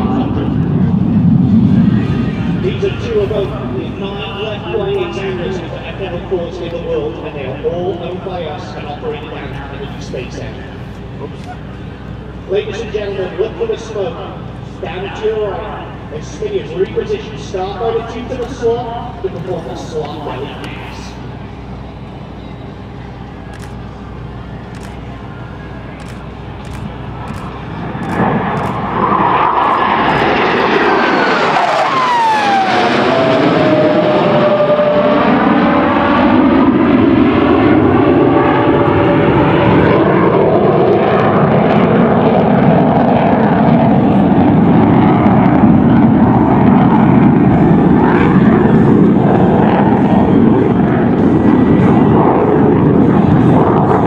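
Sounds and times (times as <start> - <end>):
jet engine whine: 0.0 - 54.0
jet engines roaring overhead: 0.0 - 54.0.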